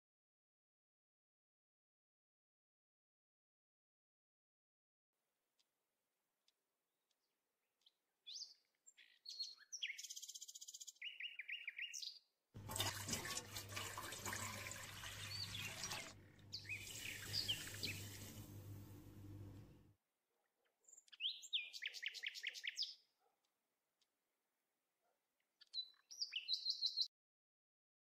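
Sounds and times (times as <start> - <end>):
birds chirping: 7.8 - 12.2, 14.3 - 19.9, 20.8 - 23.0, 25.6 - 27.1
tap running into metal pot: 12.6 - 16.1.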